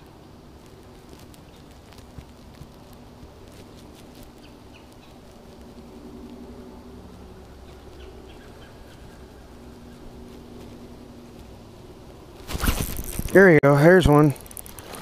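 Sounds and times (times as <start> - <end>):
fishing reel whirring: 12.5 - 13.4, 14.0 - 15.0.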